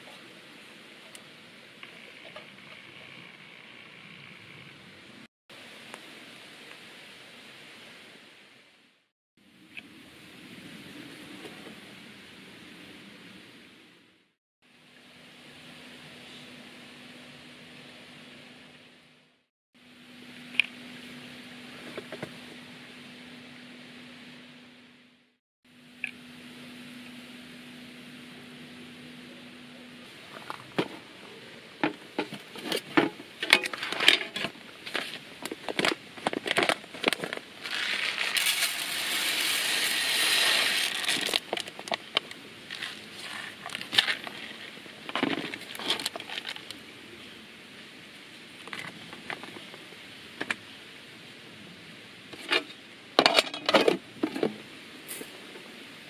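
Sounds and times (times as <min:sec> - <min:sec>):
metal tin clinks and scrapes: 0:32.2 - 0:35.1, 0:35.7 - 0:41.6, 0:52.4 - 0:54.5
rice pouring hiss: 0:37.5 - 0:47.0, 0:54.6 - 0:56.0.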